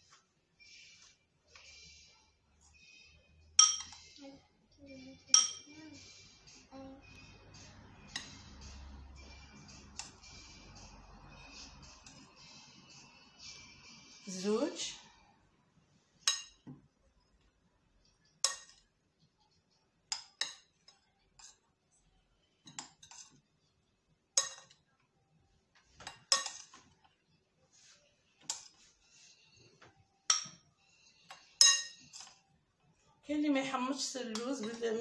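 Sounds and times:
spoon clinking against bowls: 0:03.6 - 0:04.2, 0:05.2 - 0:05.8, 0:08.0 - 0:08.6, 0:16.2 - 0:17.4, 0:18.3 - 0:18.9, 0:20.1 - 0:21.7, 0:22.6 - 0:23.5, 0:24.4 - 0:25.0, 0:26.0 - 0:27.0, 0:30.2 - 0:32.5, 0:34.2 - 0:35.0.

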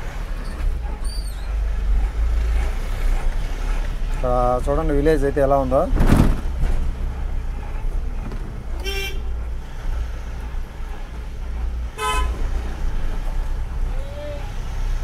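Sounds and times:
vehicle rumble: 0:00.0 - 0:15.0
vehicle horn toots: 0:08.8 - 0:09.2, 0:12.0 - 0:12.4.

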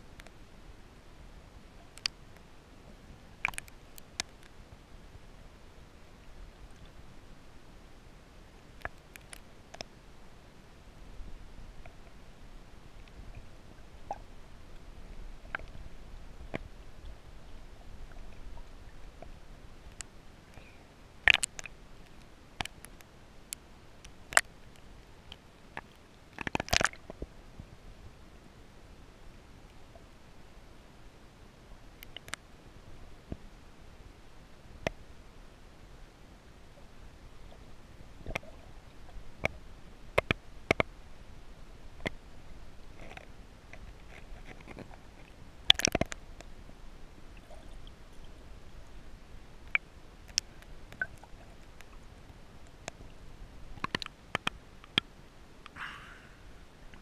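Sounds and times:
muffled underwater wash: 0:00.0 - 0:57.0
sharp underwater clicks: 0:01.9 - 0:02.5, 0:03.4 - 0:04.6, 0:08.8 - 0:10.0, 0:19.9 - 0:27.2, 0:32.0 - 0:32.4, 0:38.2 - 0:38.5, 0:39.4 - 0:41.0, 0:42.9 - 0:46.5, 0:49.6 - 0:53.1, 0:53.7 - 0:55.8
underwater clicks and knocks: 0:25.8 - 0:27.3, 0:40.2 - 0:40.9, 0:43.0 - 0:46.2, 0:53.8 - 0:55.1.

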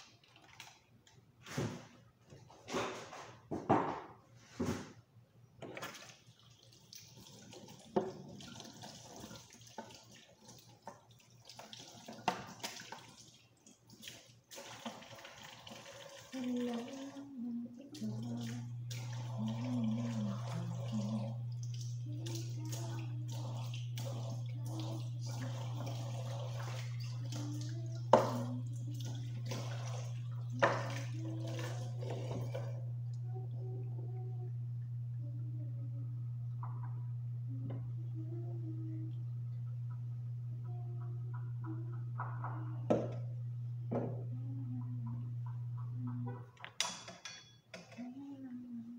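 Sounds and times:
tap water running into sink: 0:05.6 - 0:35.2, 0:36.5 - 0:46.8
steady low hum: 0:16.4 - 0:46.6
dishes clinking: 0:46.4 - 0:48.0.

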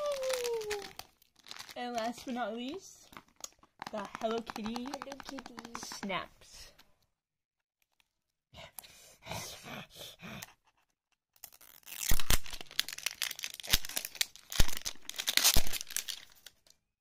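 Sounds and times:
plastic packaging crinkling and tearing: 0:00.0 - 0:06.0, 0:11.4 - 0:16.8.

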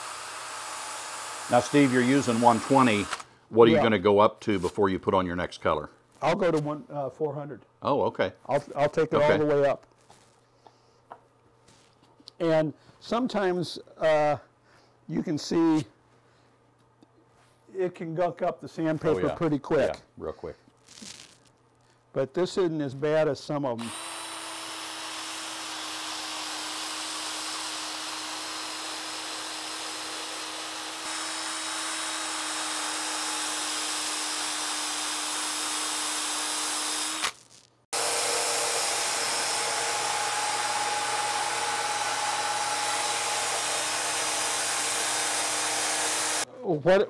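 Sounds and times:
drill motor whine: 0:00.0 - 0:03.2, 0:23.8 - 0:37.4, 0:38.0 - 0:46.4.

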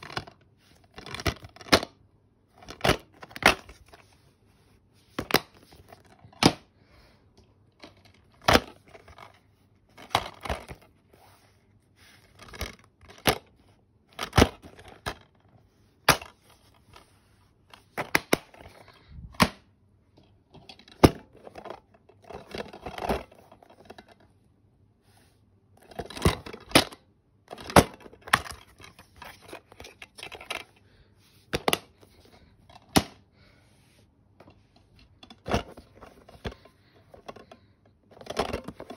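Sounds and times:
plastic cases clacking: 0:00.0 - 0:04.2, 0:07.4 - 0:11.0, 0:12.2 - 0:19.6, 0:20.2 - 0:24.2, 0:25.8 - 0:30.8, 0:31.4 - 0:33.2, 0:34.4 - 0:38.9.

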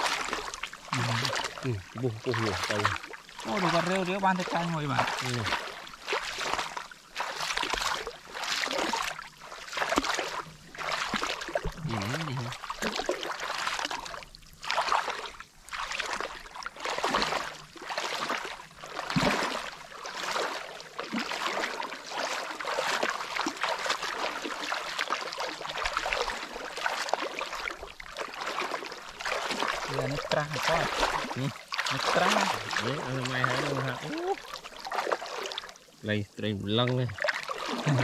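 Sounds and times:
water splashing and sloshing: 0:00.0 - 0:38.0.

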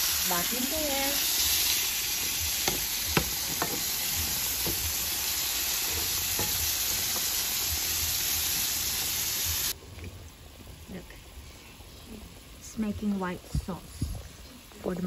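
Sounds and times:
vegetables sizzling in a pan: 0:00.0 - 0:15.0
spatula knocking against pan: 0:02.6 - 0:03.8.

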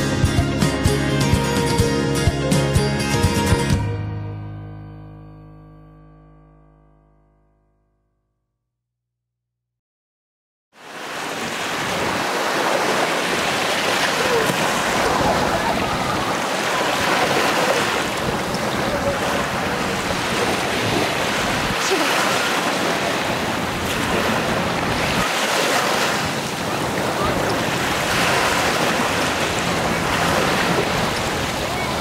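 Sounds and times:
waves breaking on pebbly beach: 0:10.8 - 0:32.0.

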